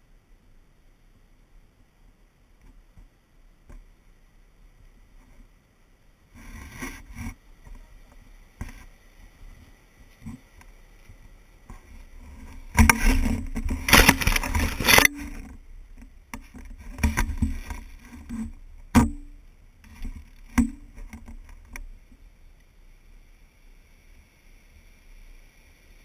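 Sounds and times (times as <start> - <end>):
camera pole rubbing and scraping: 6.4 - 7.4, 12.2 - 15.5.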